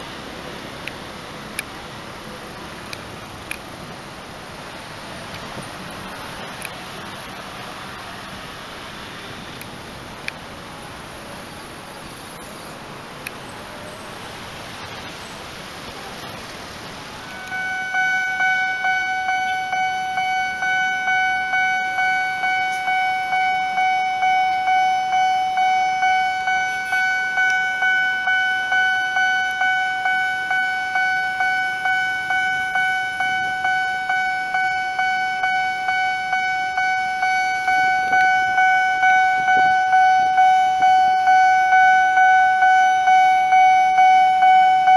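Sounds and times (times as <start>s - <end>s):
light street traffic: 0.0s - 44.9s
level crossing warning bell: 17.0s - 44.9s.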